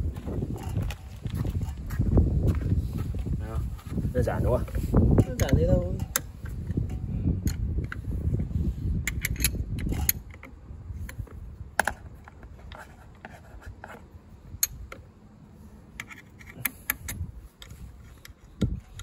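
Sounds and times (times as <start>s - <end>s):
metallic clicks of spanner: 5.2s - 8.0s, 9.0s - 11.2s, 16.0s - 19.0s.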